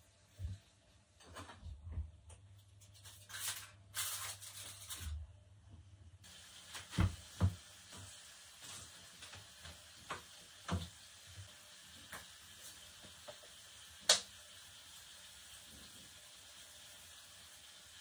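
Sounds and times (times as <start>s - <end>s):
food sizzling in a pan: 6.2s - 18.0s.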